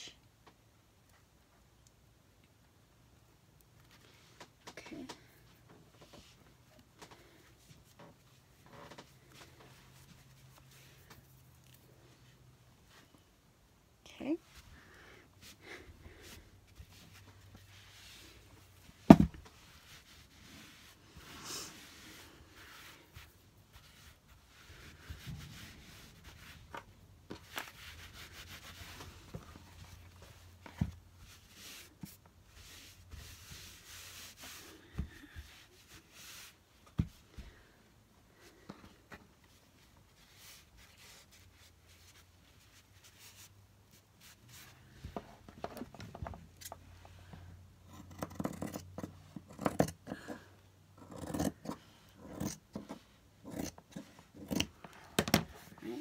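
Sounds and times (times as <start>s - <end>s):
fabric rustling and rubbing: 5.4s - 13.3s, 15.4s - 45.9s.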